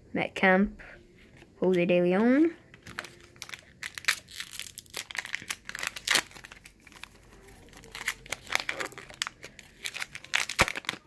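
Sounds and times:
foil wrapper crinkling: 0:02.8 - 0:11.0.

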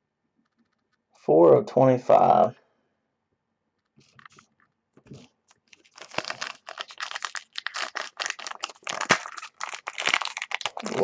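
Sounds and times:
wrapper crinkling and rustling: 0:05.1 - 0:11.0.

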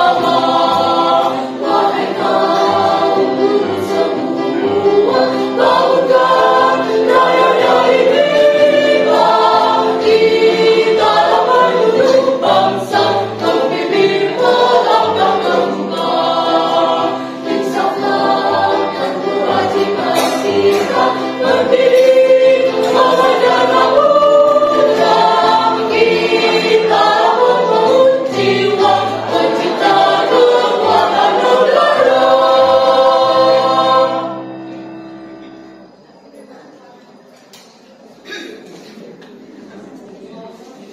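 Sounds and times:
mixed choir singing a march: 0:00.0 - 0:35.4.

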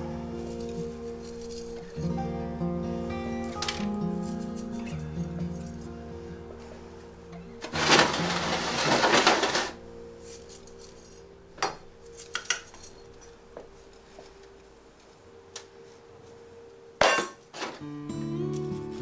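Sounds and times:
rustling and scraping: 0:07.6 - 0:11.3.

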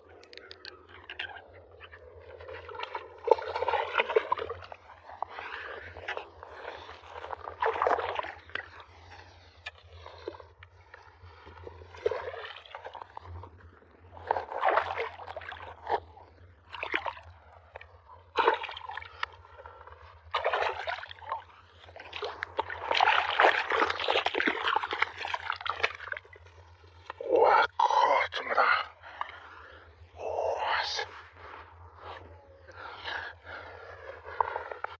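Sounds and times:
fish splashing in water: 0:18.3 - 0:26.8.

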